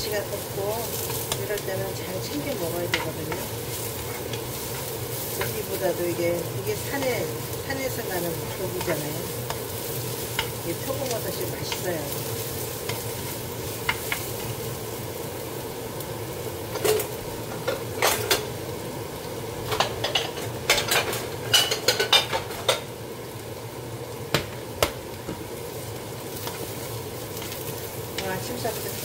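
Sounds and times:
mushrooms sizzling in frying pan: 0.0s - 29.0s
wooden spoon stirring: 0.8s - 14.4s.

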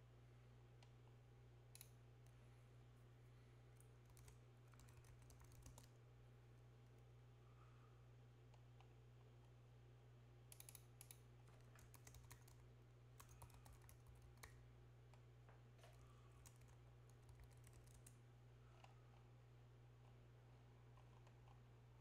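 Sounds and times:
steady low hum: 0.0s - 22.0s
computer keyboard typing: 4.0s - 6.0s, 10.6s - 12.6s, 13.2s - 14.6s, 15.9s - 18.2s.

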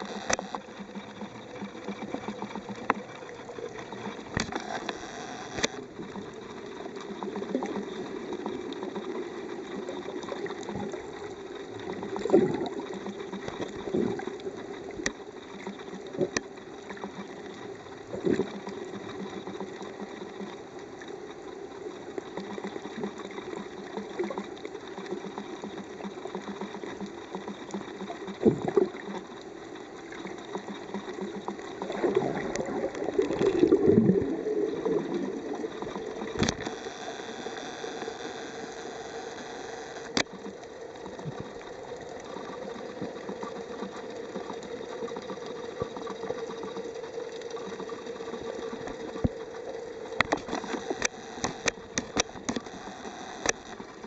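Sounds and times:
sharp clicks: 0.0s - 1.7s, 4.0s - 5.9s, 35.7s - 40.6s, 50.2s - 54.0s
muffled underwater engine hum: 0.0s - 54.0s.

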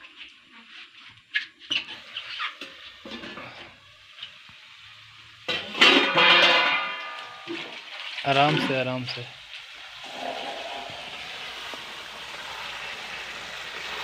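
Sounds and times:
chicken frying in a pan: 0.0s - 14.0s
spatula scraping a pan: 0.1s - 3.8s, 5.5s - 8.9s, 9.9s - 11.7s
loud hissing burst: 9.8s - 14.0s.

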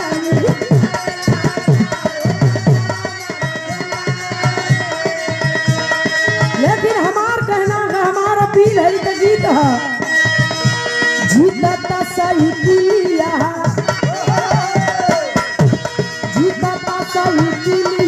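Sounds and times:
woman singing: 0.0s - 10.3s, 11.1s - 15.4s, 16.3s - 18.0s
hand drum beat: 12.6s - 18.0s.

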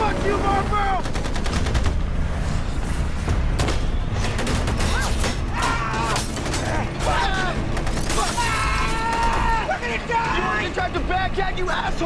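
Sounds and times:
truck engine droning: 0.0s - 12.0s
rapid gunfire: 1.0s - 2.2s, 3.6s - 9.6s.

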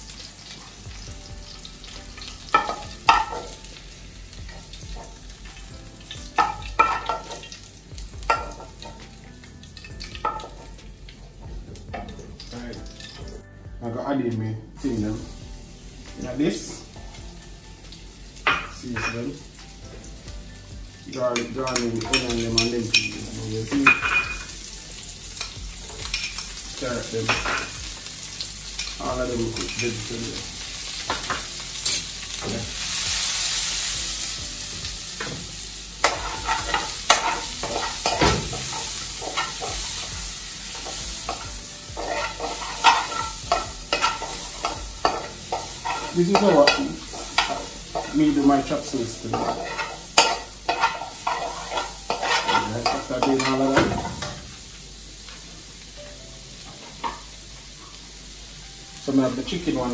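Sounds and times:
vegetables sizzling in a wok: 0.0s - 59.9s
utensil scraping and knocking pan: 36.0s - 40.2s, 40.8s - 54.4s.

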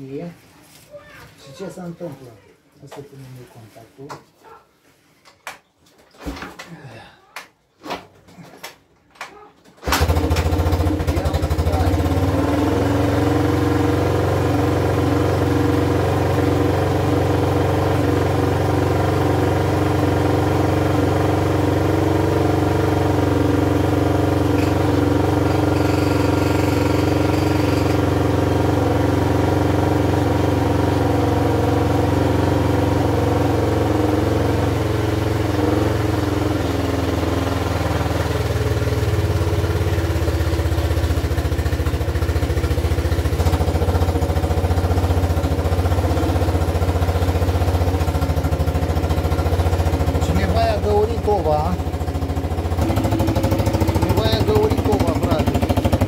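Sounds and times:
engine starting and idling: 9.8s - 13.0s, 24.4s - 28.4s, 36.8s - 56.0s.

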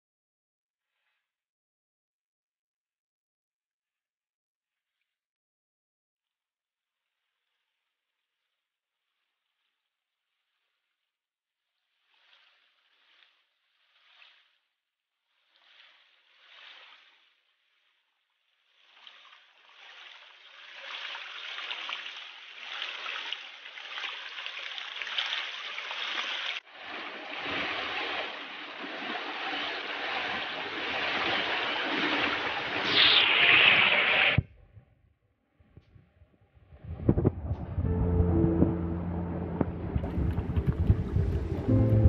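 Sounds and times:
stream water splashing over rocks: 18.8s - 34.4s.

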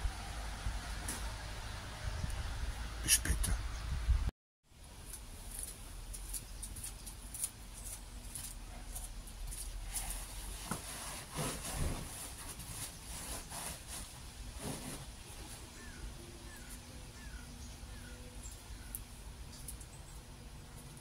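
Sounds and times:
nylon cover rustling: 9.9s - 15.1s.

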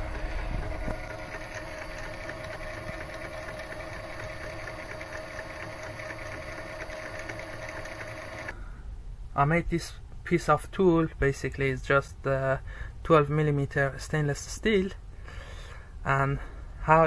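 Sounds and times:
lathe motor humming: 0.0s - 8.5s.

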